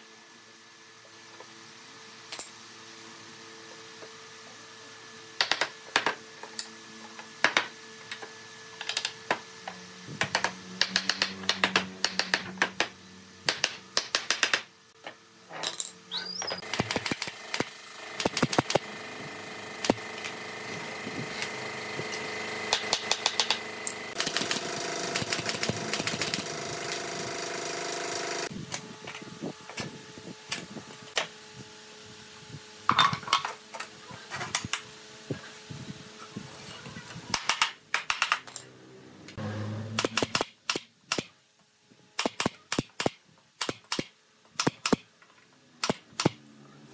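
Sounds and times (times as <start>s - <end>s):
mechanical hum: 0.0s - 46.9s
nail gun shots: 10.2s - 14.7s, 16.6s - 18.9s, 24.2s - 26.5s, 37.3s - 38.4s, 40.0s - 41.4s, 42.2s - 45.1s, 45.8s - 46.4s.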